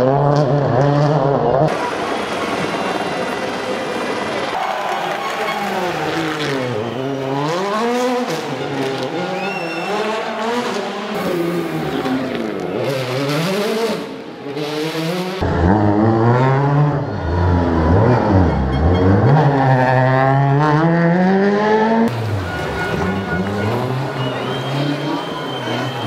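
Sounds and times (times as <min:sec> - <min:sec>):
rally car engine revving: 0:00.0 - 0:04.6, 0:05.2 - 0:26.0
deep loud engine: 0:15.4 - 0:26.0.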